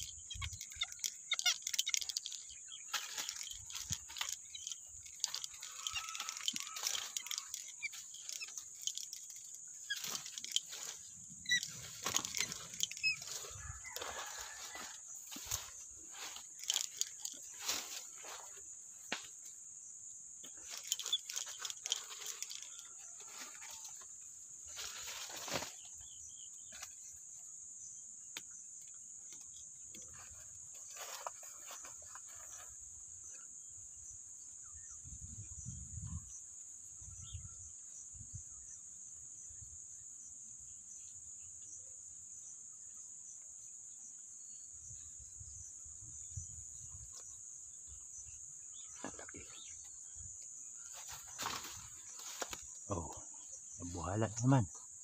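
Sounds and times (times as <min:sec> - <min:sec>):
dry leaves rustling: 0:00.0 - 0:18.6, 0:20.6 - 0:26.1, 0:50.9 - 0:52.7
insects buzzing: 0:00.0 - 0:55.0.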